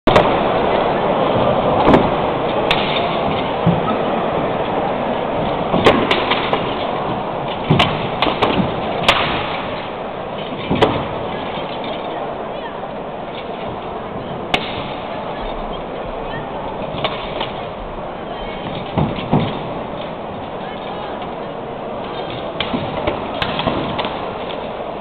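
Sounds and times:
crowd hubbub: 0:00.0 - 0:25.0
swords striking shields: 0:01.8 - 0:03.8, 0:05.7 - 0:06.9, 0:07.5 - 0:11.1, 0:14.5 - 0:15.0.

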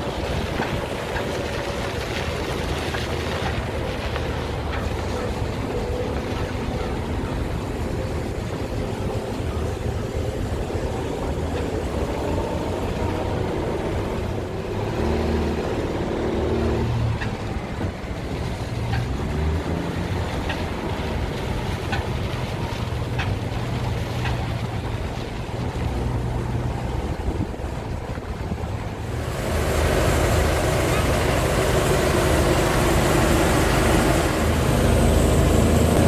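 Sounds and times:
car engine rumbling: 0:00.0 - 0:36.0.

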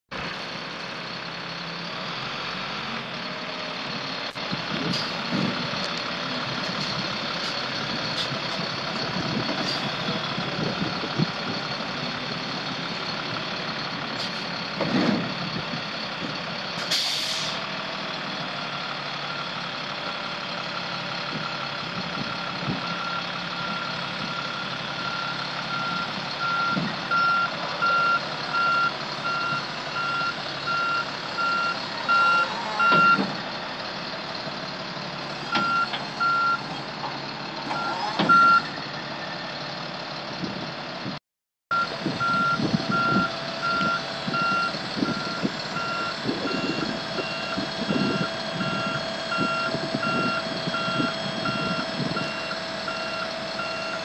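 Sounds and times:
diesel truck engine running: 0:00.1 - 0:54.0
air brakes hissing: 0:16.8 - 0:17.6.

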